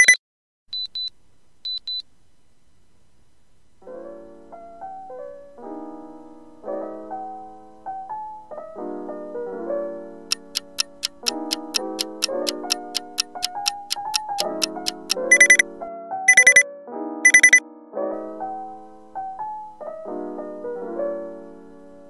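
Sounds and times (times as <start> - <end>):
short high electronic beeps: 0.0 - 0.2, 10.8 - 15.6, 16.3 - 16.6, 17.3 - 17.6
soft piano music: 3.8 - 22.0.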